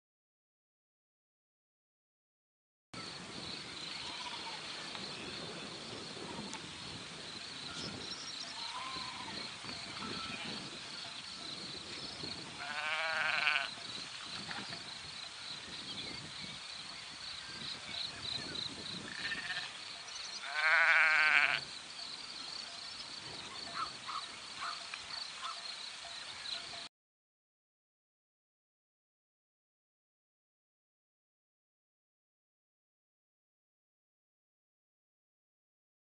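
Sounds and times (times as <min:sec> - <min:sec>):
sheep bleating: 0:04.0 - 0:04.6, 0:08.6 - 0:09.4, 0:12.6 - 0:13.8, 0:19.1 - 0:19.8, 0:20.4 - 0:21.7.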